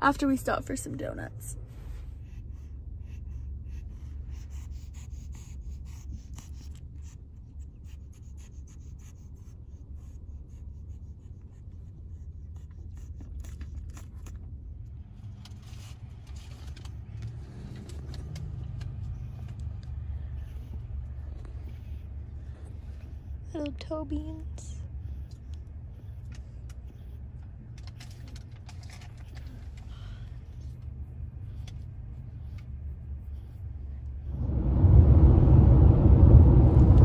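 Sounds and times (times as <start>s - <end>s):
close scratching and rustling: 10.9s - 24.0s, 24.8s - 33.8s
car cabin rumble: 34.2s - 37.0s.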